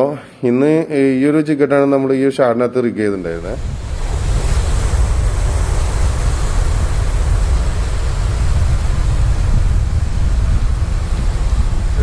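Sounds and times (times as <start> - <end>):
wind buffeting microphone: 3.1 - 12.0
sea waves breaking over rocks: 3.3 - 12.0.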